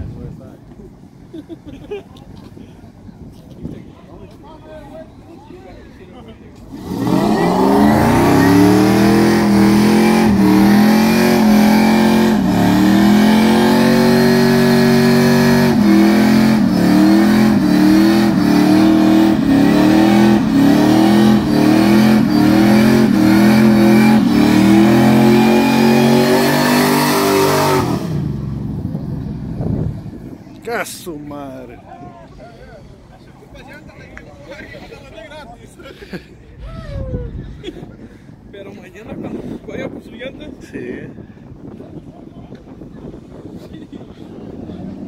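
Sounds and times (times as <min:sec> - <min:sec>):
car engine revving hard: 0:06.7 - 0:28.6.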